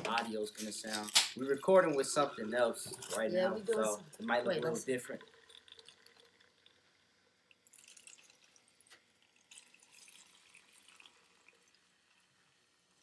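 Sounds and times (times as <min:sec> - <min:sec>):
carbonation crackling: 0:00.0 - 0:06.8
soda pouring and fizzing: 0:00.2 - 0:13.0.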